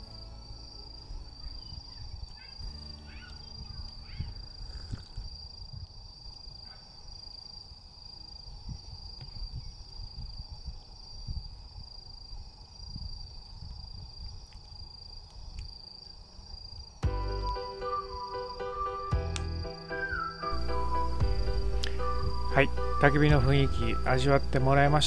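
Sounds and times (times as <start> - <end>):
insects chirring: 0.0 - 25.0
fire crackling: 13.3 - 25.0
wood fire burning: 19.2 - 25.0.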